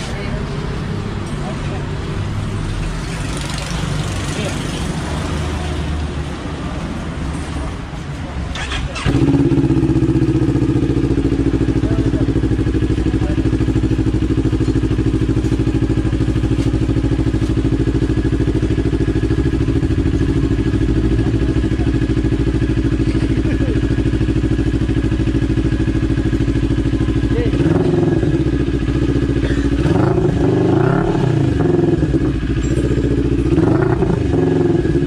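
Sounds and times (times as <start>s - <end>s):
motorcycle engine idling: 8.5s - 35.0s.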